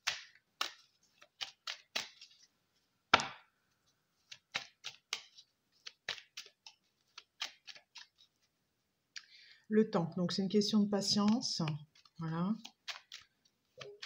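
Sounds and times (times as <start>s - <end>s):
cards being shuffled: 0.0s - 8.6s, 11.0s - 14.0s.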